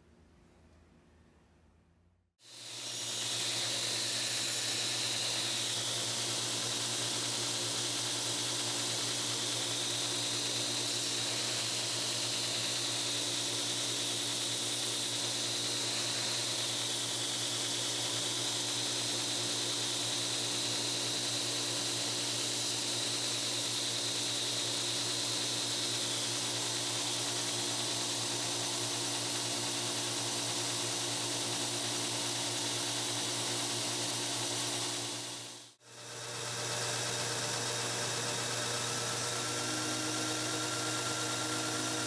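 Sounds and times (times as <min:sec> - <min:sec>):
blade grinding on belt: 0:02.5 - 0:20.4, 0:36.1 - 0:42.0
belt grinder motor hum: 0:02.5 - 0:42.0.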